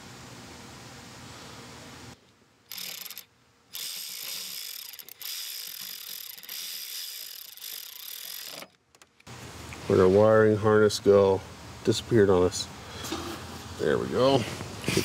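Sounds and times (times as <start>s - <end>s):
hand ratchet clicking: 2.7s - 9.3s.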